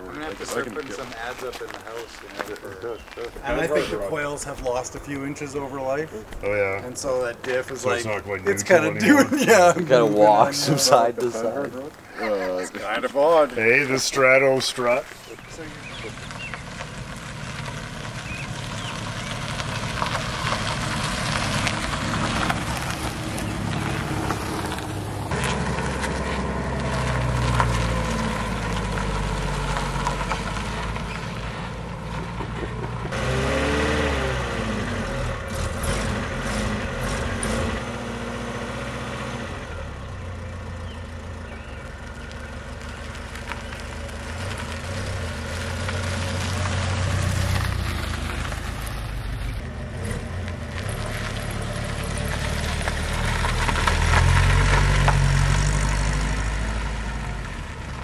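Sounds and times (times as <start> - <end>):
car engines running: 0.0 - 58.0
car revving or passing: 13.2 - 58.0.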